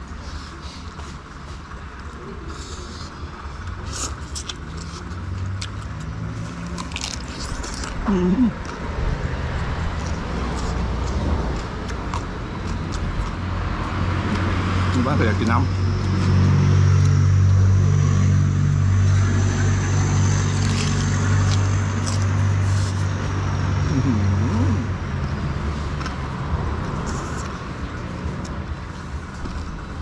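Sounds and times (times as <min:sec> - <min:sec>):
vehicle engine humming: 0:00.0 - 0:30.0.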